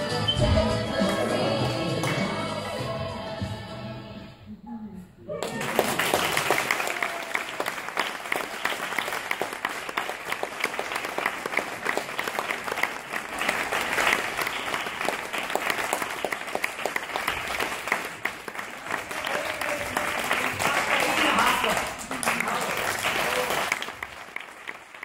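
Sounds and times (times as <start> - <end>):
audience applauding: 5.4 - 25.0.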